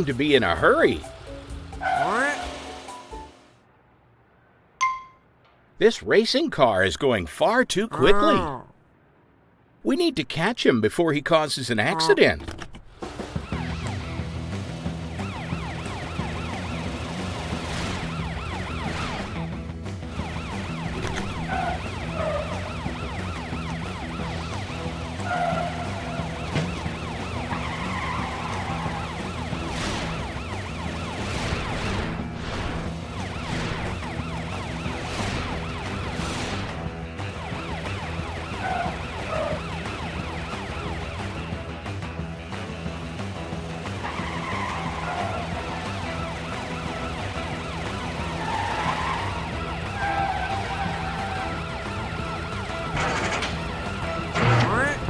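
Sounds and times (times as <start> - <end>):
chase music: 0.0 - 3.6
cartoon police siren wailing: 15.1 - 17.1, 17.8 - 19.5, 20.1 - 32.0, 33.0 - 36.2, 37.3 - 41.6, 44.4 - 52.5.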